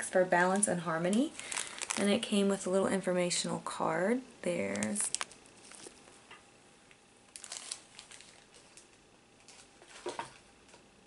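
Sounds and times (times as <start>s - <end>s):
plastic bag and paper rustling: 0.4s - 2.4s, 4.6s - 6.0s, 7.3s - 10.4s.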